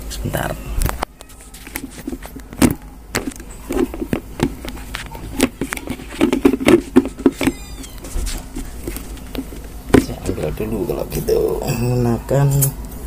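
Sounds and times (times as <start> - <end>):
objects clicking and knocking: 0.9 - 10.2.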